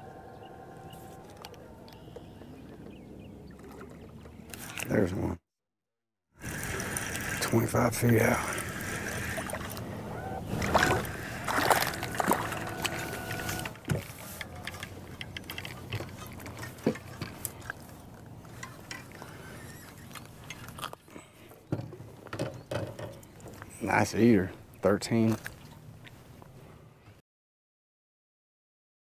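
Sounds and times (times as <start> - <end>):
fish splashing at surface: 8.4 - 13.3.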